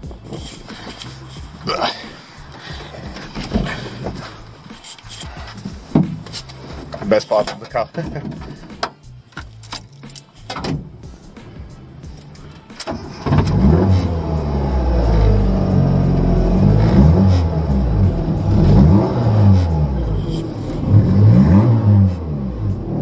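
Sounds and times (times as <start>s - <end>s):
car engine revving: 0.0s - 8.9s, 10.4s - 23.0s.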